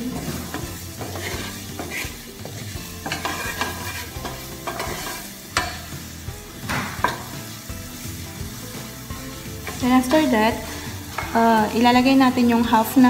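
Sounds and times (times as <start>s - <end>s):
spatula scraping a pan: 0.0s - 12.0s
frying sizzle: 0.0s - 13.0s.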